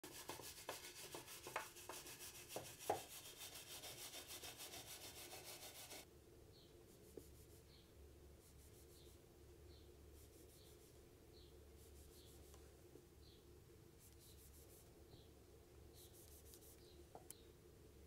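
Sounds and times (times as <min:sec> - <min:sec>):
hand tool rubbing on wood: 0:00.0 - 0:06.0.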